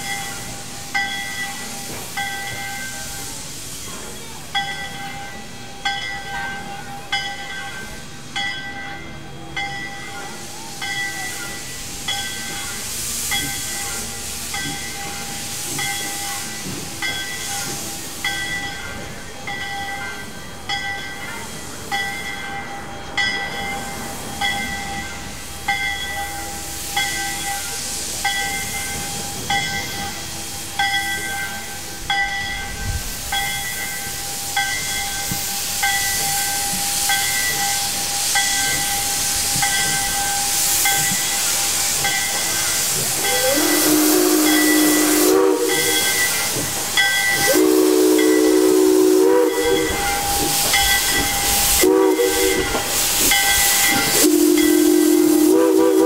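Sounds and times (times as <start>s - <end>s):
locomotive bell ringing: 0.0s - 56.0s
steam hissing: 0.0s - 56.0s.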